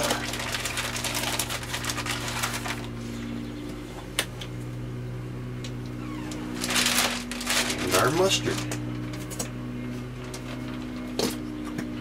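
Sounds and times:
plastic bag crinkling: 0.0 - 3.0, 6.3 - 9.2
steady low hum: 0.0 - 12.0.

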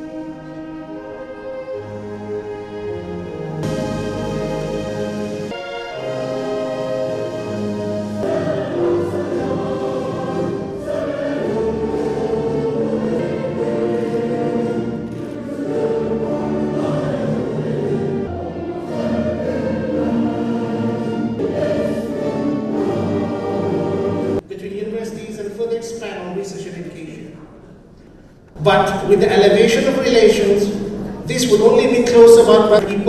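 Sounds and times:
choir singing anthem: 0.0 - 24.4
orchestral accompaniment: 0.0 - 24.4.

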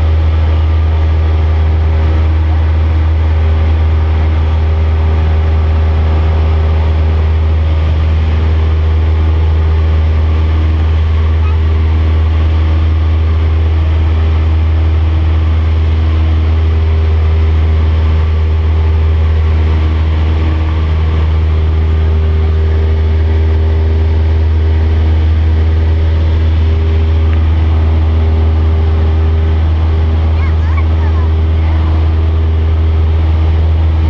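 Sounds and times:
aircraft engine droning: 0.0 - 34.0.

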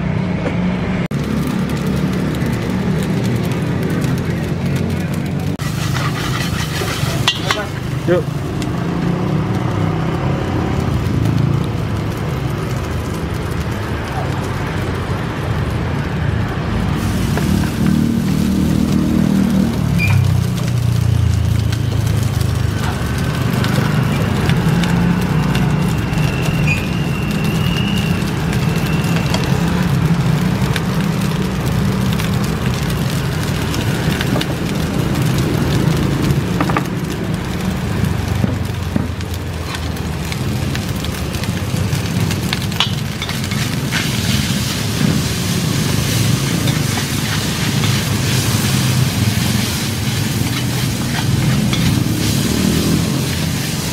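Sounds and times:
gas burner rushing: 0.1 - 53.9
food frying: 1.0 - 53.9
metal spatula scraping a wok: 5.6 - 8.0, 42.8 - 53.9.

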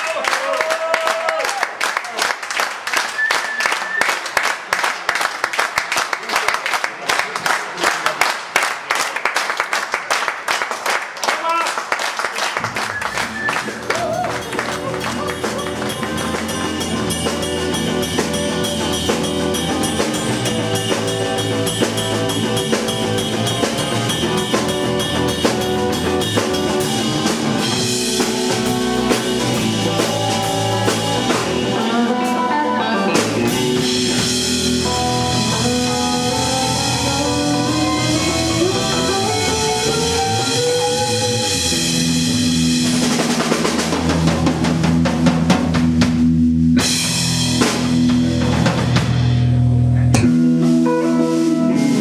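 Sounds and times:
drum kit: 12.5 - 52.0
electric bass: 12.6 - 52.0
electric guitar: 12.6 - 52.0.

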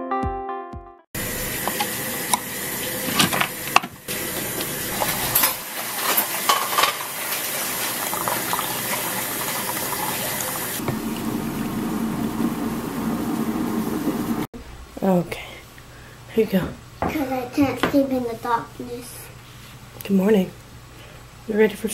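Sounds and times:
coffee pouring into metal mug: 1.2 - 14.4.

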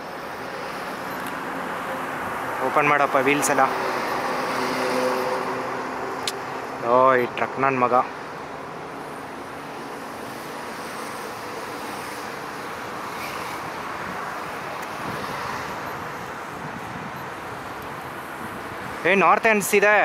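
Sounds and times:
wind on microphone: 14.8 - 19.0.

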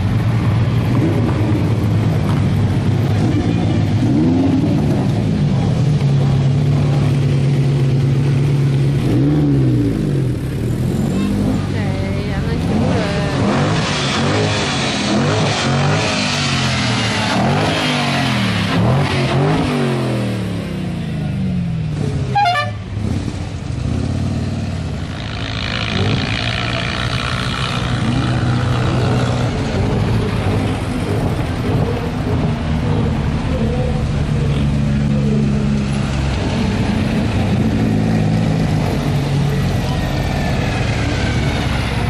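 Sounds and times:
cars and motorcycles driving past: 0.0 - 42.0
car horn: 22.3 - 23.0.

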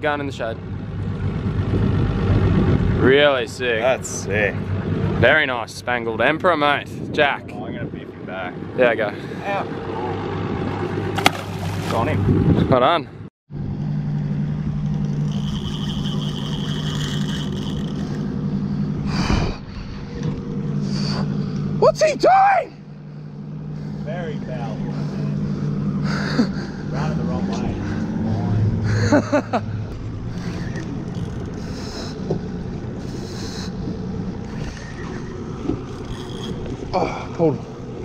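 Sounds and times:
boat engine humming: 0.0 - 12.6, 13.5 - 38.0
wind: 0.0 - 38.0
water noise: 9.6 - 12.6, 14.8 - 22.0, 23.7 - 38.0.

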